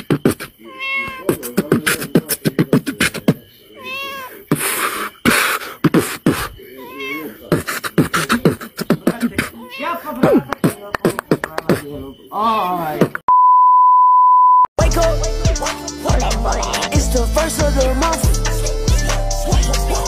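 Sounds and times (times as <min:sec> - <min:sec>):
person beatboxing: 0:00.0 - 0:00.6, 0:01.2 - 0:03.4, 0:04.5 - 0:06.6, 0:07.5 - 0:09.6, 0:10.2 - 0:11.9, 0:13.0 - 0:13.2, 0:14.8 - 0:20.0
cat meowing: 0:00.6 - 0:01.5, 0:03.7 - 0:04.5, 0:06.6 - 0:07.5, 0:09.6 - 0:10.3.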